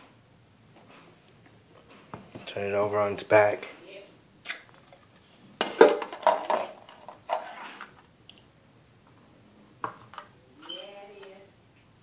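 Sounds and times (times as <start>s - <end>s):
plastic cups knocking and clattering: 4.5s - 8.1s.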